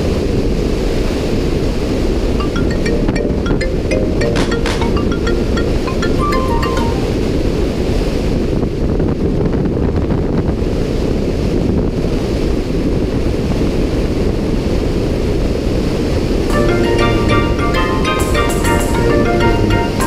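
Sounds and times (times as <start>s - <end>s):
freefall wind buffeting microphone: 5.2s - 18.1s.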